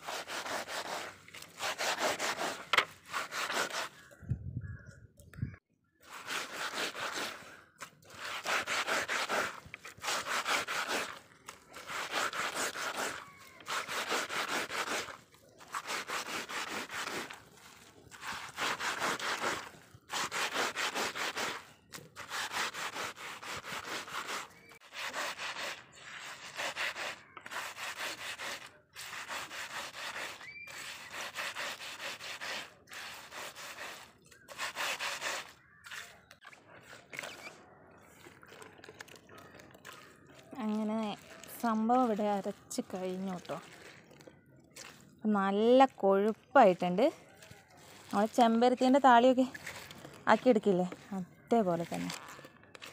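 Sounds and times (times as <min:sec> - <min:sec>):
leaves rubbed on grinding stone: 0:00.0 - 0:04.0, 0:06.1 - 0:07.5, 0:08.1 - 0:36.2.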